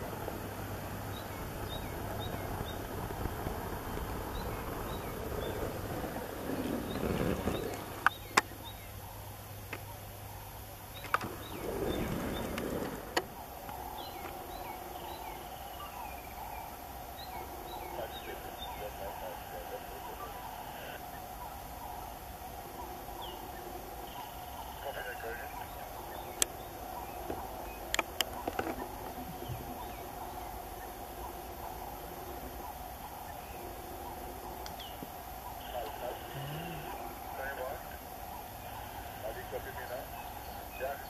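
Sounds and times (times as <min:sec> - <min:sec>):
rumbling noise: 0:00.0 - 0:08.6, 0:10.9 - 0:21.1
small birds chirping: 0:00.0 - 0:41.0
vehicle engine idling: 0:00.0 - 0:41.0.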